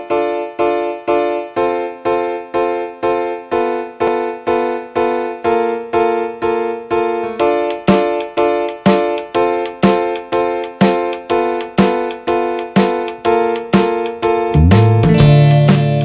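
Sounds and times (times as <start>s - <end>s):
electric piano chords: 0.0s - 16.0s
plucked notes: 14.5s - 16.0s.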